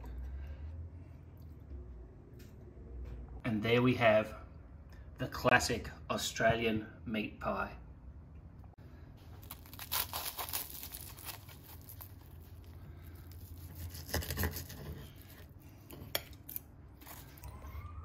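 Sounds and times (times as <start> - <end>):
pastry crackling: 9.3 - 17.4.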